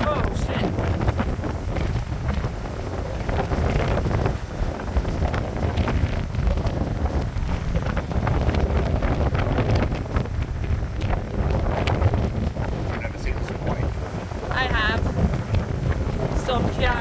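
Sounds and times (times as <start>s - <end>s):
heavy surf breaking on rocks: 0.0s - 17.0s
wind buffeting microphone: 0.0s - 17.0s.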